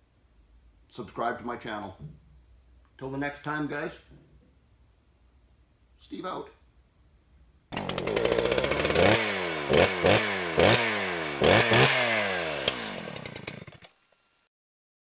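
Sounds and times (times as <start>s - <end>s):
small gasoline engine revving: 7.7s - 14.5s.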